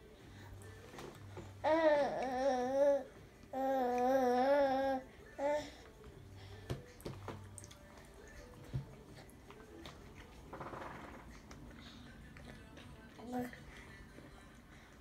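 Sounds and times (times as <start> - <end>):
toddler sing-song vocalising: 1.6 - 6.0.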